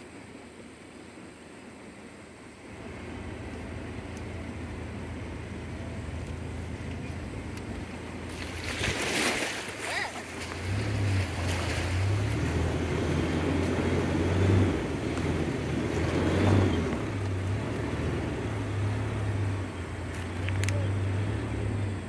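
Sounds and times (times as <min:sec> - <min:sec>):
truck engine low drone: 0:00.0 - 0:22.0.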